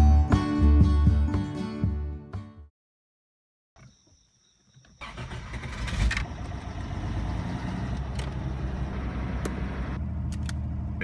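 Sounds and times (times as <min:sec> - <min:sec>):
car engine starting and idling: 0:04.8 - 0:11.0.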